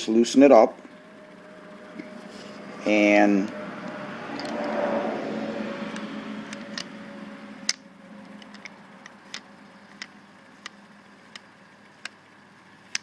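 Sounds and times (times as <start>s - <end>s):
sharp detent clicks: 3.8s - 4.8s, 5.9s - 7.0s, 7.6s - 12.2s.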